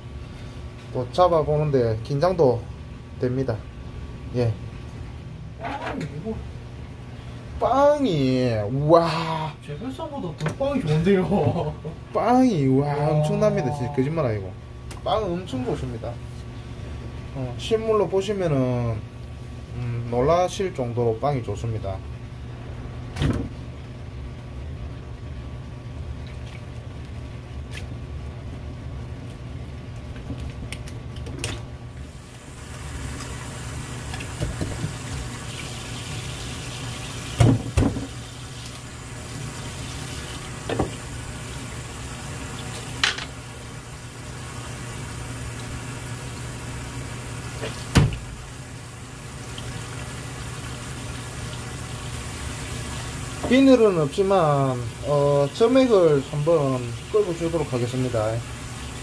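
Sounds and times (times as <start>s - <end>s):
steady low hum: 0.0s - 59.0s
water running and splashing: 32.0s - 59.0s.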